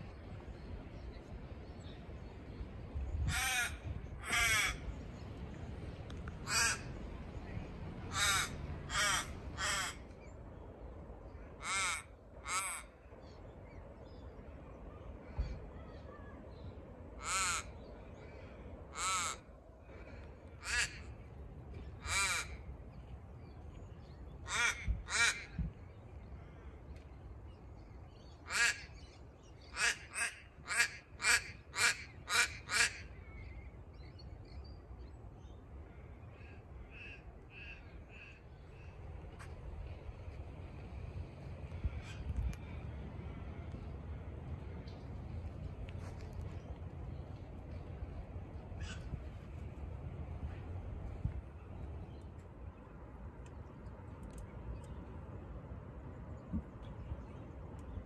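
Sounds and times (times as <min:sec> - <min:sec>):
crow cawing: 0:03.3 - 0:04.8, 0:06.4 - 0:06.9, 0:08.1 - 0:10.0, 0:11.6 - 0:12.9, 0:17.2 - 0:17.8, 0:18.9 - 0:20.0, 0:20.6 - 0:21.1, 0:22.0 - 0:22.6, 0:24.4 - 0:25.6, 0:28.5 - 0:28.9, 0:29.7 - 0:33.1, 0:48.8 - 0:49.1.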